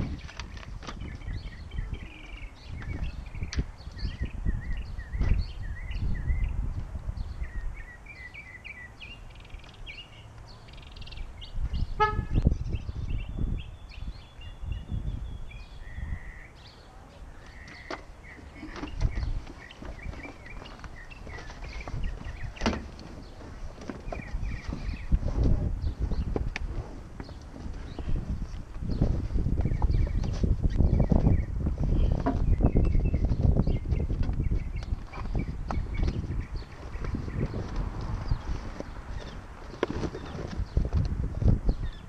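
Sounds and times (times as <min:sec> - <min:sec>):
birds chirping: 0:00.0 - 0:42.0
short horn toot: 0:12.0 - 0:12.4.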